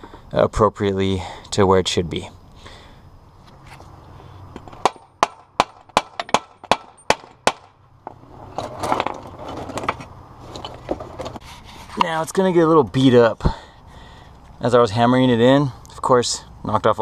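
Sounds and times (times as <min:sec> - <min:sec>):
scraping and handling noise: 0:08.0 - 0:12.5.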